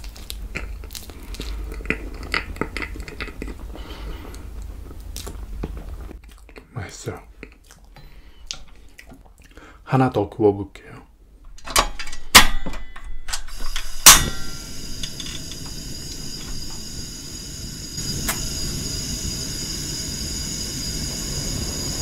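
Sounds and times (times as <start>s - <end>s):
gas burner flame hissing: 0.3s - 6.2s, 13.4s - 22.0s.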